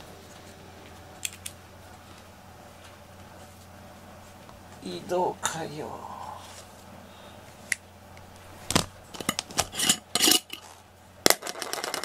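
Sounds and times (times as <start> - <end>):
small hard objects clicking: 11.3 - 12.0.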